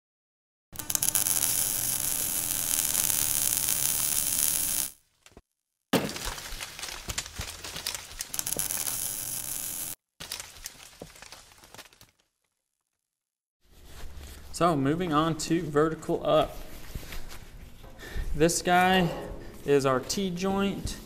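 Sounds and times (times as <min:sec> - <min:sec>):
crackling hiss of sparks and fire: 0:00.8 - 0:05.0, 0:07.4 - 0:10.0.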